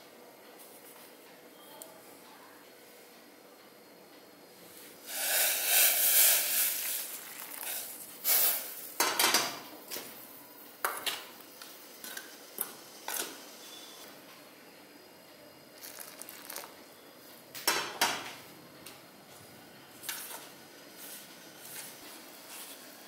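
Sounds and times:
water pouring into bowl: 0:07.1 - 0:07.9, 0:15.8 - 0:16.8.

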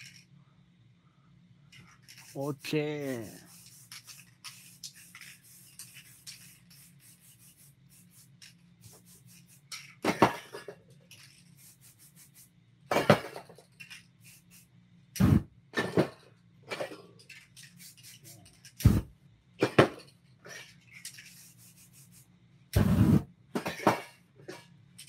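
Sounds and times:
hands rubbing on canvas: 0:02.2 - 0:09.7, 0:11.6 - 0:12.5, 0:21.2 - 0:23.2.

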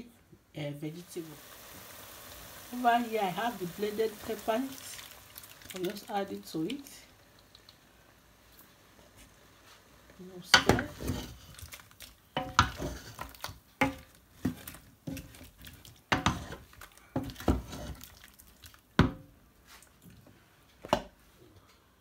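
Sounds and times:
wooden spatula scraping pot: 0:10.5 - 0:11.8, 0:12.4 - 0:18.2.

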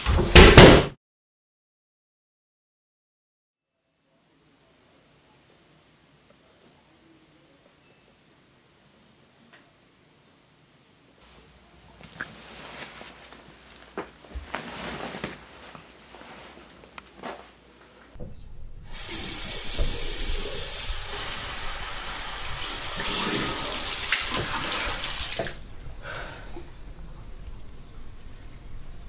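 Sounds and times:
faint rustles and clicks: 0:11.2 - 0:18.2
faucet running into sink: 0:18.9 - 0:25.7.

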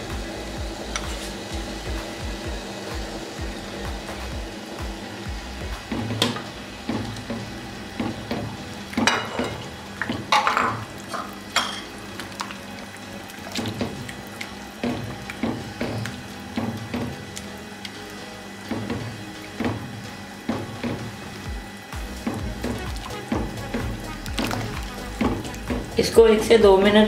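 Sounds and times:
liquid sloshing: 0:06.9 - 0:18.1, 0:18.7 - 0:26.2
spatula clattering: 0:09.0 - 0:12.0.

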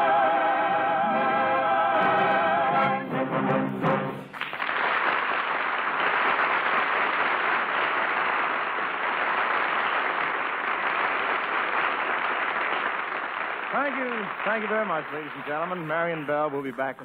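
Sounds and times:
studio audience applauding: 0:04.3 - 0:17.0.

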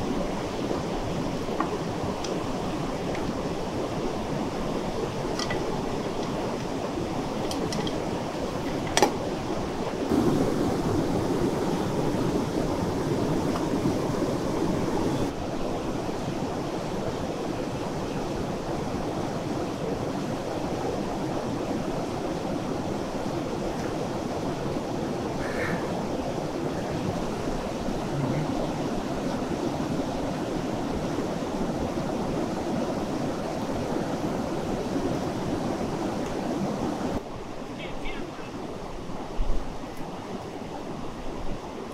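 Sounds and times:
river rushing: 0:00.0 - 0:41.9.

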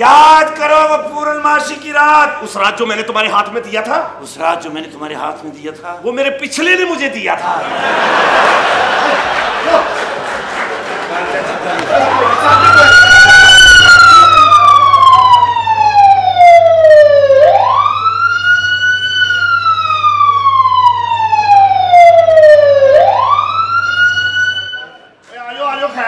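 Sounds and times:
police siren wailing: 0:11.9 - 0:24.9.

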